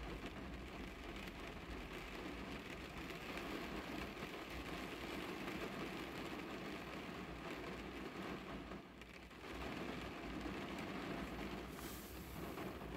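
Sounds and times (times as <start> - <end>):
rain on a car roof: 0.0 - 12.9.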